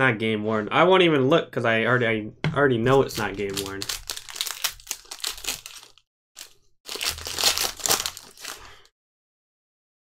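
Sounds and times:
foil wrapper crinkling: 0:02.9 - 0:08.9.

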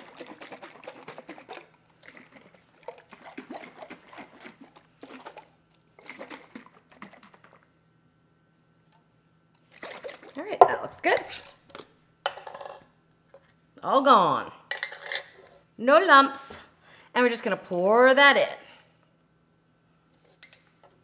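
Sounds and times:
liquid sloshing in jar: 0:00.0 - 0:07.6, 0:09.7 - 0:10.4.

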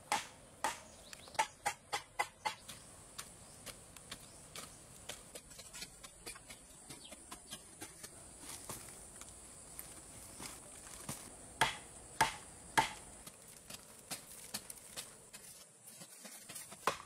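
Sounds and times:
scraping in dirt: 0:02.8 - 0:11.4, 0:13.0 - 0:17.0.

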